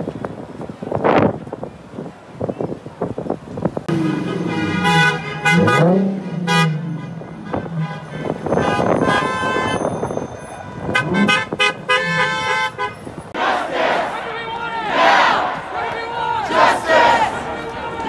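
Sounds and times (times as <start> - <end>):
passing traffic rumble: 0.0 - 18.0
car horns honking: 3.9 - 18.0.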